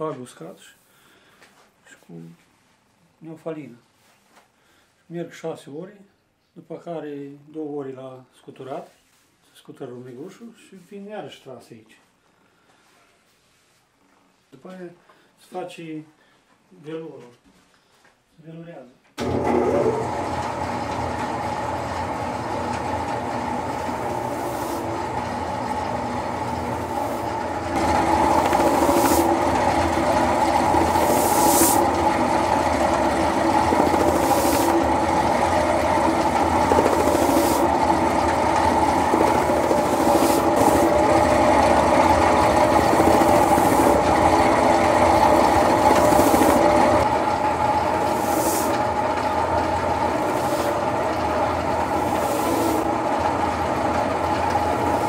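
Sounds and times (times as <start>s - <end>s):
abrasive drum motor running: 19.2s - 55.0s.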